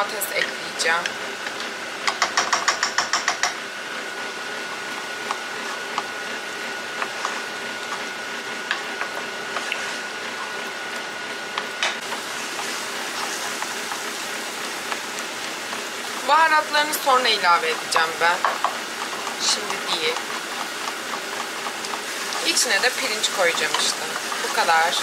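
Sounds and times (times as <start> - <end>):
onions sizzling in a frying pan: 10.8 - 25.0.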